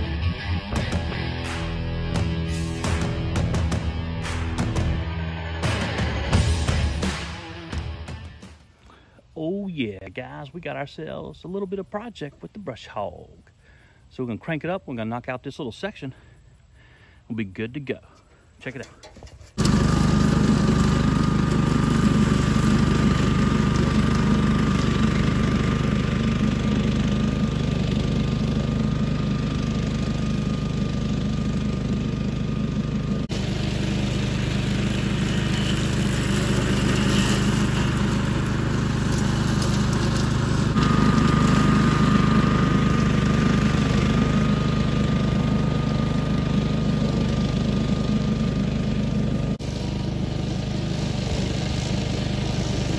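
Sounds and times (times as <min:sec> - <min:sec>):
brush mower engine whining: 0:08.7 - 0:52.9
mower cutting through brush: 0:18.6 - 0:52.9.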